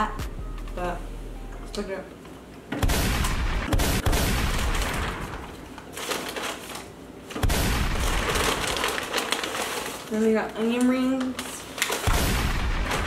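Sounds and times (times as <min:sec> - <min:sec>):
paper bag rustling: 0:04.7 - 0:07.4, 0:08.0 - 0:12.1.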